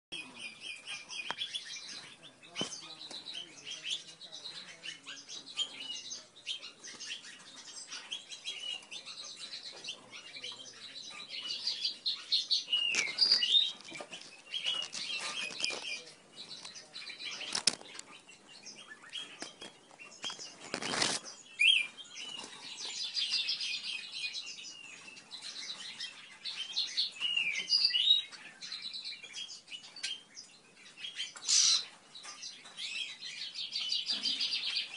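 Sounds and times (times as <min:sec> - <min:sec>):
birds chirping: 0:00.1 - 0:34.9.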